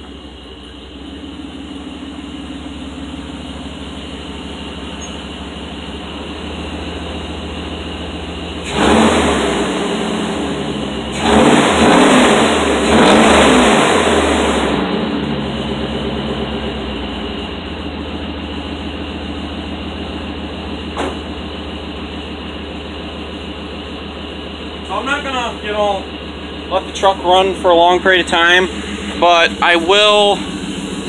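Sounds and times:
pickup engine idling and revving: 0.0s - 31.0s
car door shutting: 20.9s - 21.3s.

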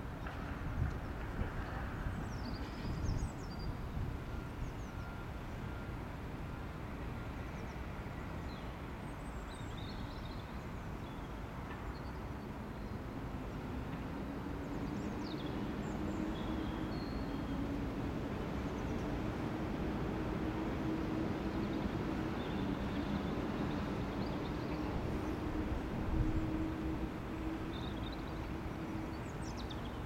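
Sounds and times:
distant traffic rumble: 13.1s - 30.0s.

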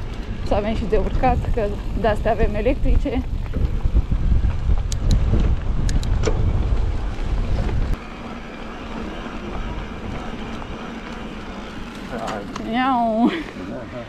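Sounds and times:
wind buffeting microphone: 0.0s - 12.3s
bike rolling hiss: 1.2s - 14.0s
sharp clicks: 4.8s - 6.4s.

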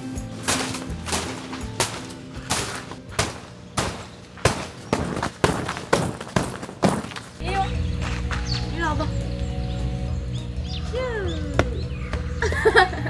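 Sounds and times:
soft background music: 0.0s - 3.1s, 7.4s - 13.0s
tent fabric snapping: 0.0s - 7.4s.

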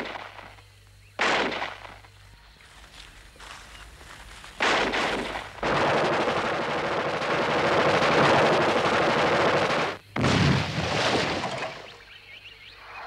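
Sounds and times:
continuous gunfire: 1.2s - 2.0s, 4.6s - 11.5s.

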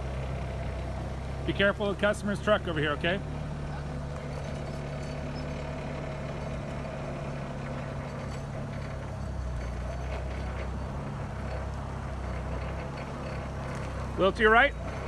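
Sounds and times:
forklift engine running: 0.0s - 15.0s
tires on gravel: 0.0s - 15.0s.

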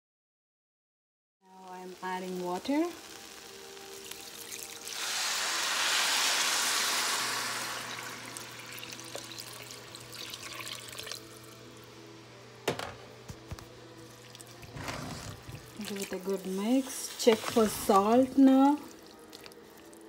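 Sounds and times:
water hissing in hot pot: 1.7s - 11.6s, 14.0s - 20.0s.

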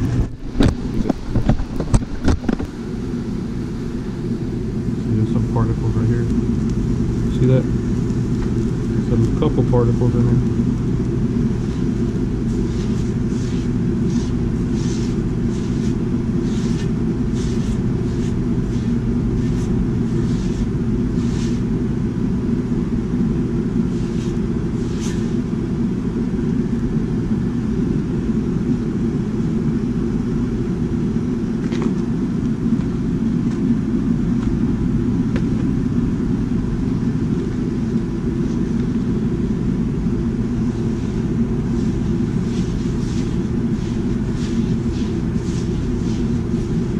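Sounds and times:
gas burner roaring: 0.0s - 46.9s
paper towel wiping wok: 10.0s - 21.9s, 23.7s - 25.6s, 40.4s - 46.9s.

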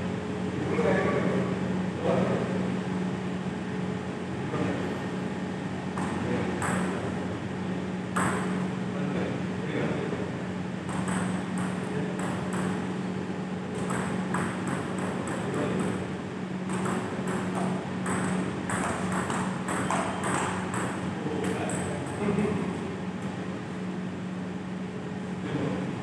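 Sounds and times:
steady low hum: 0.0s - 26.0s
table tennis ball clicking: 10.9s - 12.8s, 16.7s - 21.0s.

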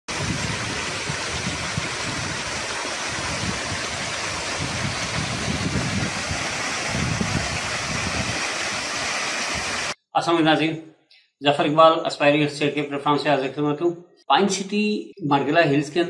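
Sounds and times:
waterfall rushing into pool: 0.1s - 10.0s.

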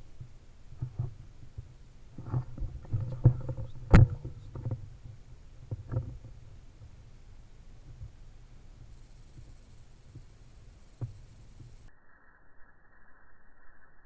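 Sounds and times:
rifle handling knocks and rubbing: 0.8s - 6.4s.

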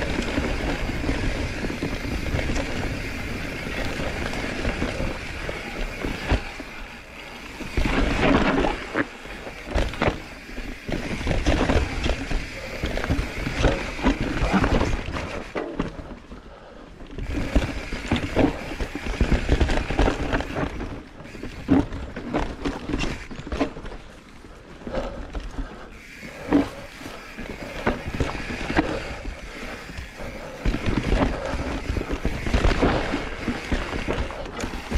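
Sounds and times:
bike knocking and clattering: 0.0s - 16.4s, 17.0s - 34.9s
bike tyres rumbling on trail: 0.0s - 34.9s.

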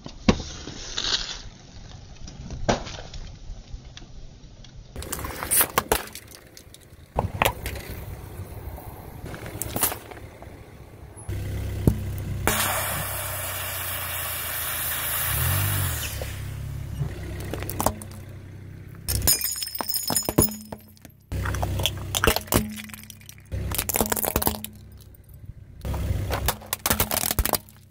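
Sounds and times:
objects crunching under a tyre: 4.7s - 27.9s
car engine running: 5.0s - 27.9s
aerosol can bursting and hissing: 12.5s - 16.7s.

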